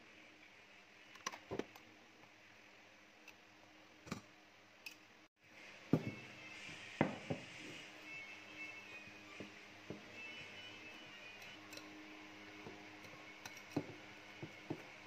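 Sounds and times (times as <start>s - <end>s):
metal beaters and bowl clicking: 11.3s - 12.0s, 12.6s - 15.0s.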